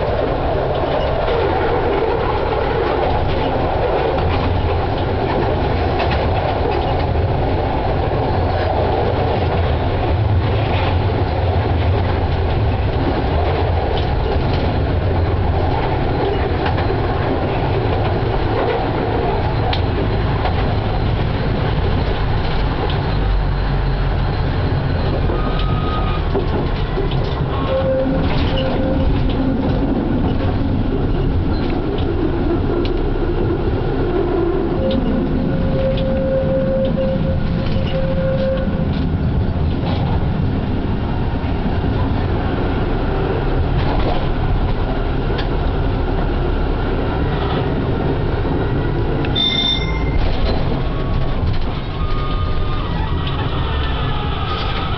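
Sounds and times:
tram wheels rumbling on rails: 0:00.0 - 0:54.9
high squeal: 0:23.1 - 0:26.4, 0:49.3 - 0:54.9.

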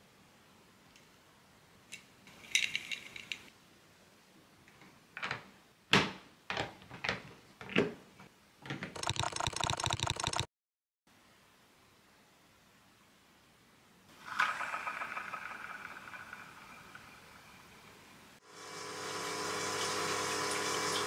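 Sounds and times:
plastic bricks clicking together: 0:02.0 - 0:03.5, 0:08.6 - 0:10.5.

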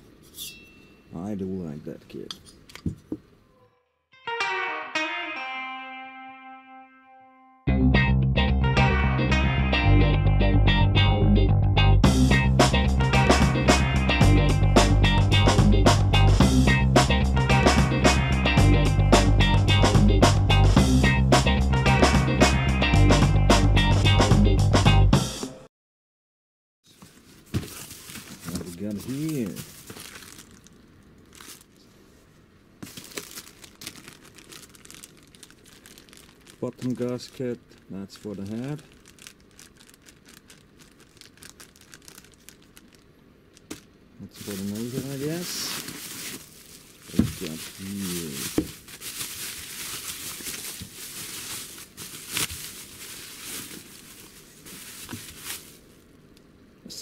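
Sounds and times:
plastic bag crinkling: 0:27.2 - 0:31.9, 0:32.8 - 0:56.1.

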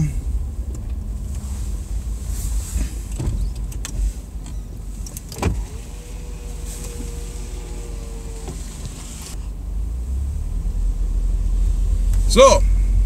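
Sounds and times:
car rumble: 0:00.0 - 0:13.0
electric window motor whining: 0:04.5 - 0:09.4.

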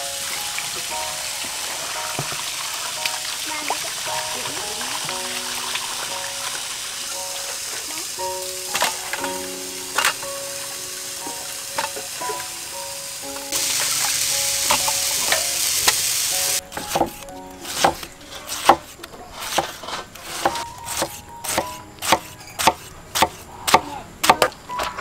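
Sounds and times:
light background music: 0:00.0 - 0:23.7
steady hiss: 0:00.0 - 0:24.4
cleaver chopping on wooden block: 0:20.4 - 0:24.5.

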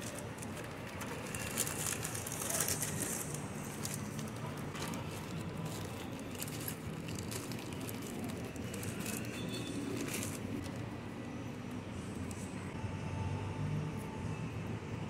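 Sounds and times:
plastic bag crinkling: 0:00.0 - 0:11.5.

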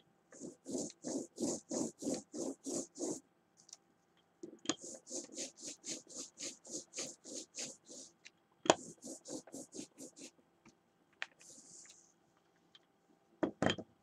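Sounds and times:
rubbing strokes on a surface: 0:00.4 - 0:03.2, 0:04.8 - 0:08.2, 0:08.8 - 0:10.3, 0:11.4 - 0:12.1.

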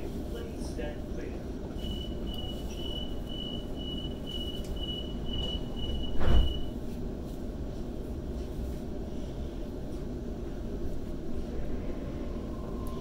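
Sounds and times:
train low hum: 0:00.0 - 0:13.0
high-pitched warning beeps: 0:01.7 - 0:06.7
train doors thudding shut: 0:05.3 - 0:06.7.

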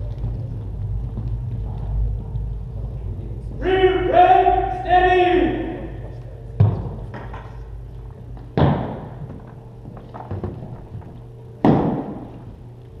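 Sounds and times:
low steady hum: 0:00.0 - 0:13.0
light footfalls: 0:06.0 - 0:13.0
boots stamping on wooden floor: 0:08.4 - 0:12.6.

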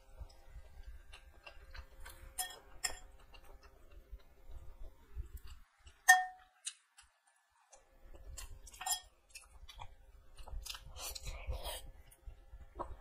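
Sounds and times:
close-up chewing: 0:00.1 - 0:13.0
spoon clinking against dishes: 0:02.4 - 0:03.1, 0:06.1 - 0:06.5, 0:08.7 - 0:09.1.

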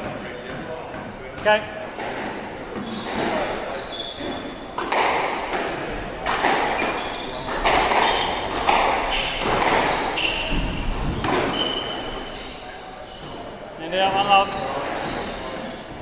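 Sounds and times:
shoes squeaking on wooden floor: 0:01.4 - 0:05.4, 0:06.4 - 0:16.0
squash ball smacks echoing: 0:04.8 - 0:12.2.

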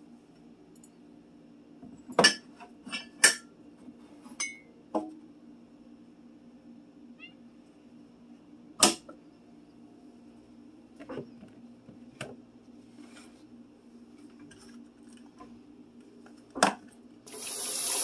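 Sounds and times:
low steady hum: 0:00.0 - 0:17.8
mugs clinking on a shelf: 0:02.0 - 0:03.5, 0:04.4 - 0:05.1.

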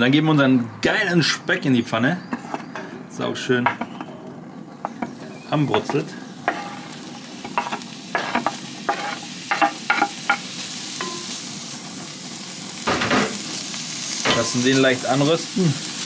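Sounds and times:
bacon sizzling in a pan: 0:04.7 - 0:16.0.

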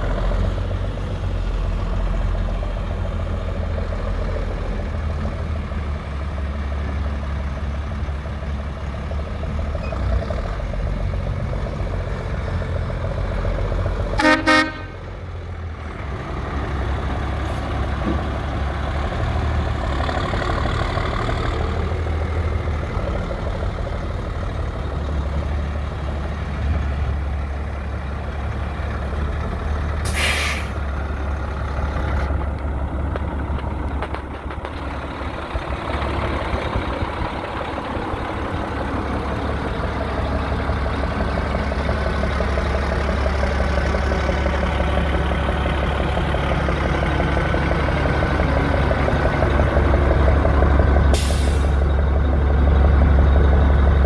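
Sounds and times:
diesel engine idling: 0:00.0 - 0:54.0
vehicle horn honking: 0:14.2 - 0:15.0
short hiss: 0:30.0 - 0:30.8.

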